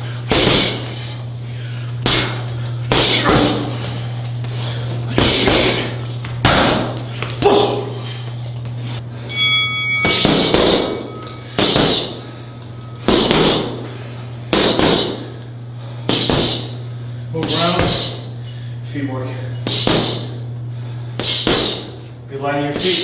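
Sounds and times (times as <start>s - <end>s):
strikes thudding on heavy bag: 0.3s - 0.8s, 6.4s - 7.7s, 10.0s - 12.1s, 13.0s - 13.8s, 14.5s - 15.3s, 16.1s - 16.7s, 19.7s - 20.2s
short metallic ring: 9.3s - 11.6s.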